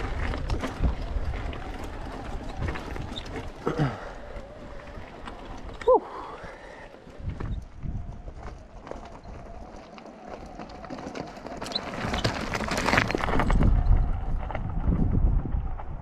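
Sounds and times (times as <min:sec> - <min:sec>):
bike tyres crunching on stones: 0:00.0 - 0:16.0
low rumble: 0:13.2 - 0:16.0.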